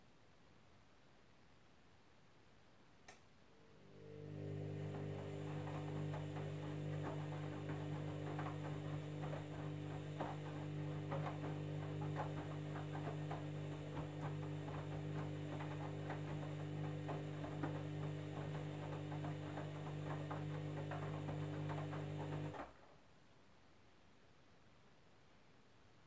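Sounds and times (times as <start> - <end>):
washing machine motor hum: 3.5 - 22.8.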